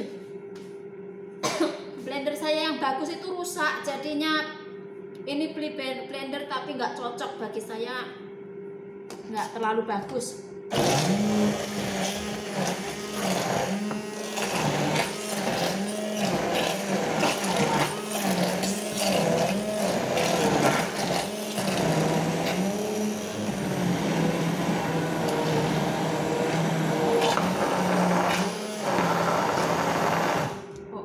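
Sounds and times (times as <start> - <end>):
stick blender motor: 10.7 - 30.7.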